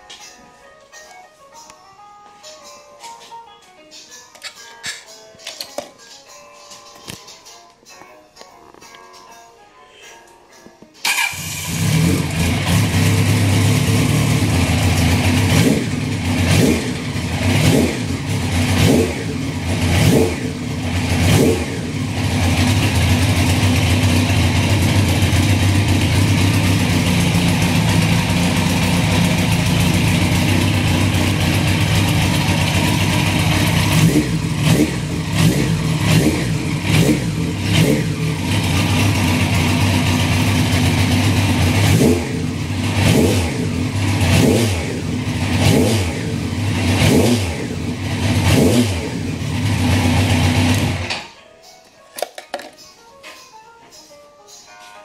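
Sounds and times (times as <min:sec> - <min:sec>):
motorcycle engine idling: 0:11.0 - 0:51.1
motorcycle throttle revs: 0:11.1 - 0:51.1.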